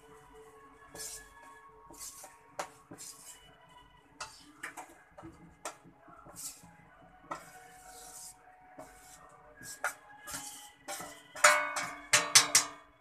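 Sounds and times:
flour sliding swishes: 0.9 - 3.5, 7.3 - 11.1
spoon clinking on steel bowl: 10.9 - 12.8.

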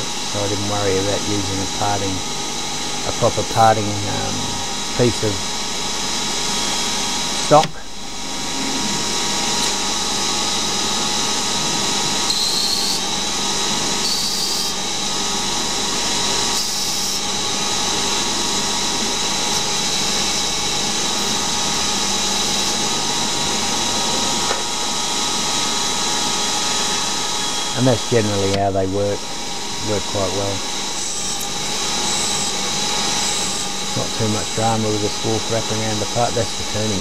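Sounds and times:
cutting tool hiss: 0.0 - 2.3, 8.9 - 15.0, 15.6 - 24.6, 29.5 - 37.0
lathe whine: 0.0 - 37.0.

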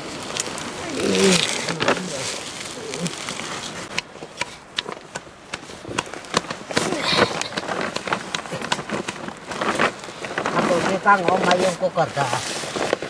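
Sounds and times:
taps and scrapes on stone: 3.9 - 9.2.

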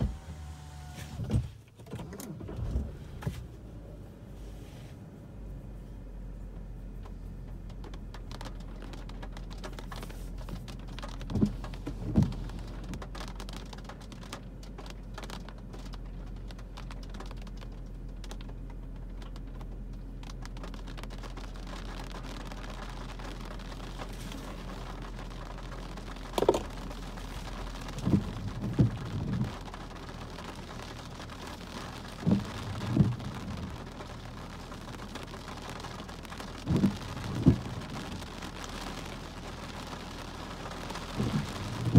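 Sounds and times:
rain on car roof and glass: 0.0 - 41.9
short dull thumps: 26.2 - 27.0.

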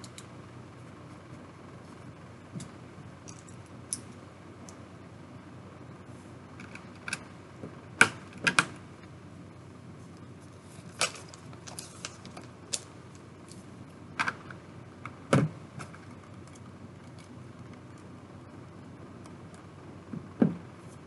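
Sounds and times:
dull knock: 20.4 - 20.6.

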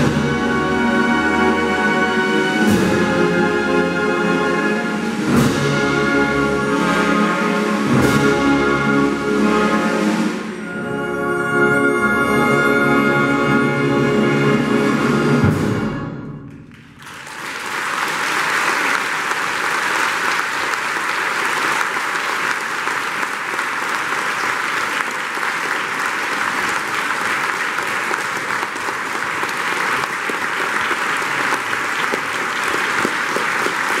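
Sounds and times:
audience applause: 16.6 - 34.0.

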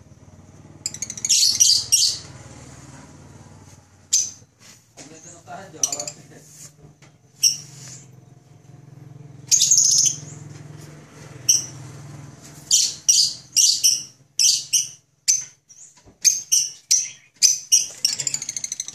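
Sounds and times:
cockatiels chirping: 0.9 - 2.3, 5.8 - 6.2, 7.4 - 8.0, 12.7 - 18.9.

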